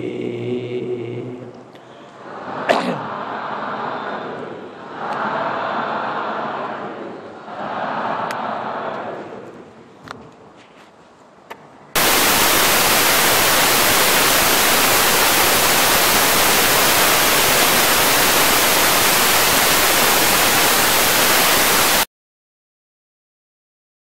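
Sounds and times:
electronic static hiss: 12.0s - 22.1s.

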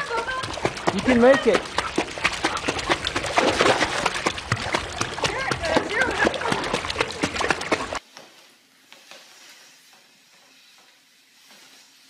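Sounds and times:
dog splashing in pool: 0.0s - 8.0s.

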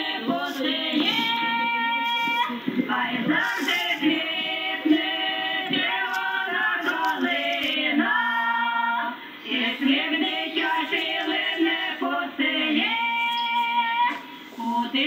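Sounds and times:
woman singing: 0.0s - 15.0s.

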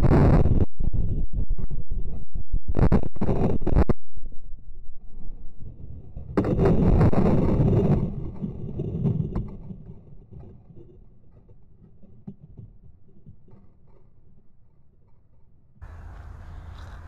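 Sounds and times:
high steady whine: 0.0s - 7.5s
faint rustling in brush: 15.9s - 17.0s.

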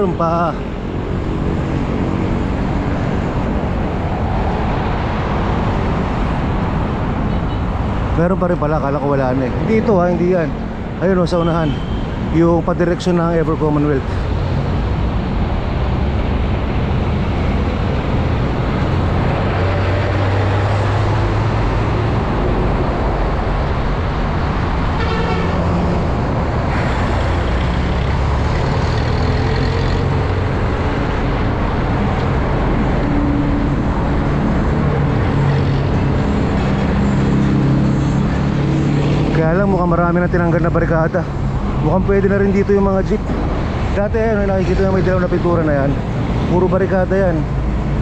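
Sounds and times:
wind rush on microphone: 0.0s - 11.0s, 41.3s - 48.0s
traffic engine hum: 0.0s - 48.0s
vehicle horn toot: 11.6s - 12.0s, 25.0s - 25.6s.

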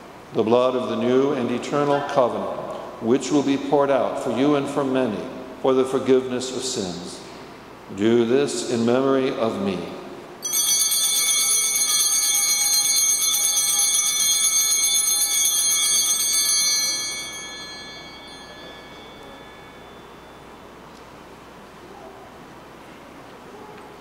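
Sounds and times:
altar bells ringing: 10.4s - 21.0s.

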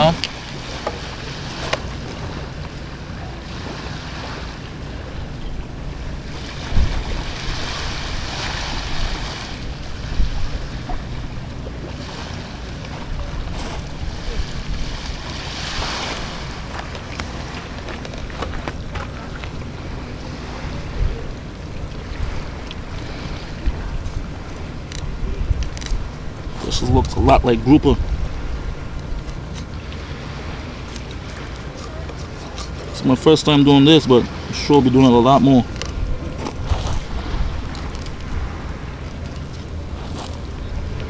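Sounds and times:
wind buffeting microphone: 0.0s - 33.1s, 33.8s - 41.0s
waves washing onto gravel: 5.9s - 25.0s, 29.4s - 41.0s.

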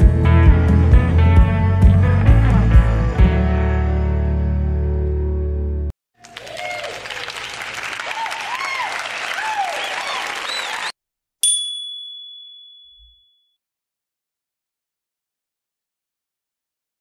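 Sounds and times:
background music: 0.0s - 5.9s
applause and cheering: 6.2s - 11.0s
bright ding: 11.4s - 13.3s.

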